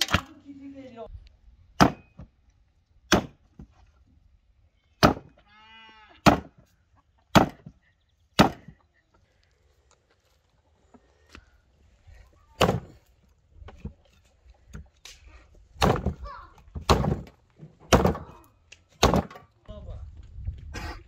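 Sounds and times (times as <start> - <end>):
axe chopping on wooden block: 1.8 - 2.3, 3.1 - 3.4, 5.0 - 5.3, 6.2 - 6.6, 7.3 - 7.7, 8.4 - 8.7, 12.6 - 13.0, 15.8 - 16.2, 16.8 - 18.3, 19.0 - 19.4.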